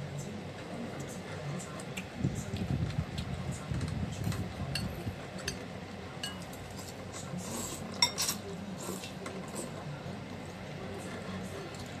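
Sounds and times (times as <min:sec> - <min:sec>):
cutlery clinking on ceramic bowl: 0:06.2 - 0:06.6, 0:07.9 - 0:08.4.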